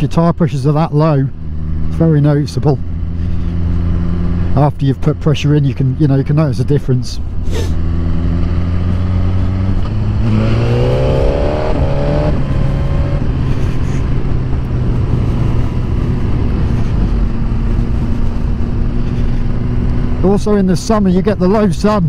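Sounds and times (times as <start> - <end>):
motorcycle engine accelerating: 1.1 - 22.0
wind noise: 7.2 - 20.7.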